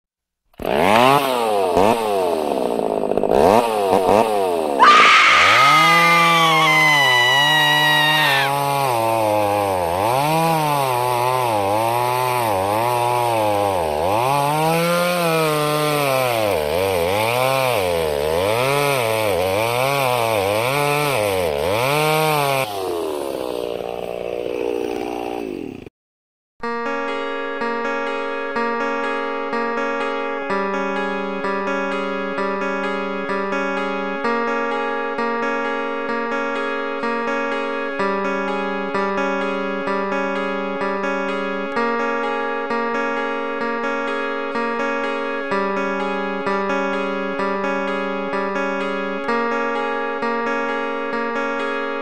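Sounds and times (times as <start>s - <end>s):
small engine revving: 0.5s - 25.9s
high whine: 4.8s - 8.4s.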